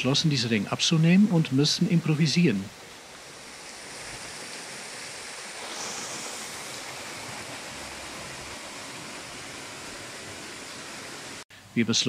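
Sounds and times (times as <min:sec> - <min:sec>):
water rushing and splashing: 0:00.0 - 0:11.4.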